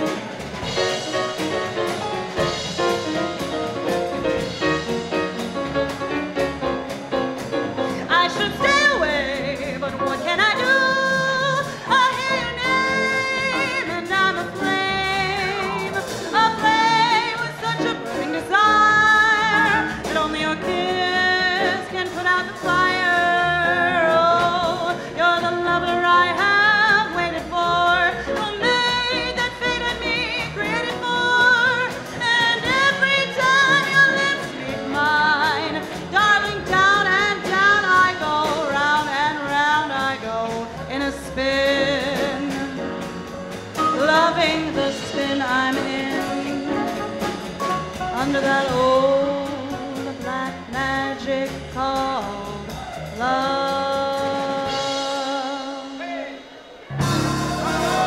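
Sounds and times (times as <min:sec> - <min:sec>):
swing dance band playing: 0:00.0 - 0:58.0
woman singing into a microphone: 0:08.1 - 0:43.0, 0:43.8 - 0:47.1, 0:48.2 - 0:56.2.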